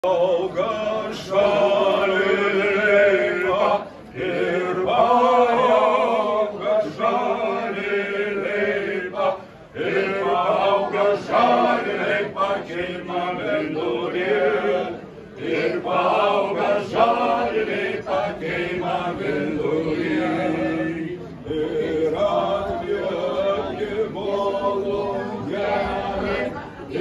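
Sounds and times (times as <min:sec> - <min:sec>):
group singing without instruments: 0:00.0 - 0:27.0.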